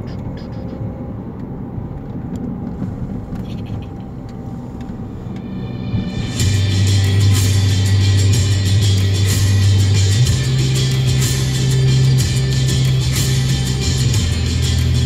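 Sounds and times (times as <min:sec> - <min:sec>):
car road and engine rumble: 0:00.0 - 0:15.0
loud music with heavy bass: 0:05.8 - 0:15.0.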